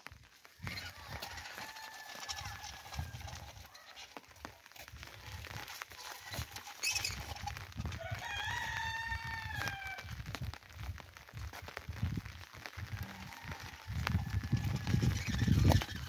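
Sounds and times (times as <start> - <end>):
rooster crowing: 0.6 - 4.0, 7.9 - 10.1, 13.0 - 15.3.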